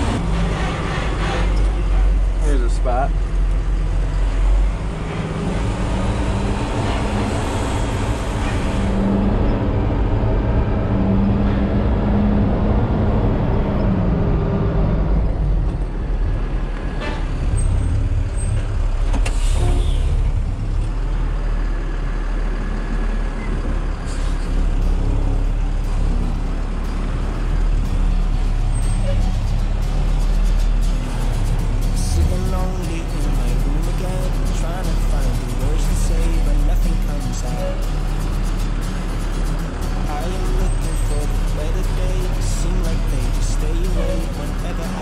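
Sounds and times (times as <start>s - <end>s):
truck diesel engine under load: 0.0s - 45.0s.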